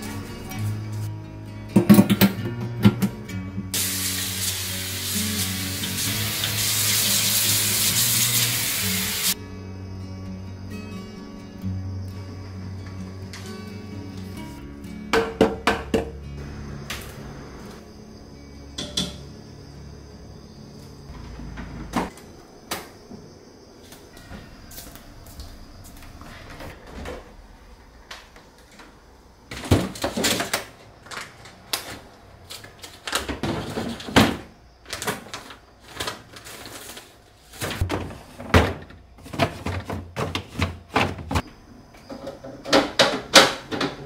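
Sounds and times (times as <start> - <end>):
food containers clattering: 29.5 - 44.0
plastic drawers sliding and knocking: 33.1 - 36.8, 37.6 - 41.4.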